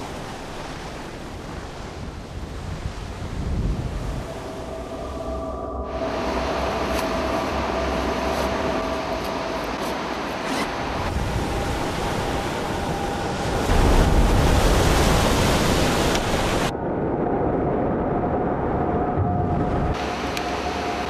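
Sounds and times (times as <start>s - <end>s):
ocean wave breaking: 0.0s - 16.7s.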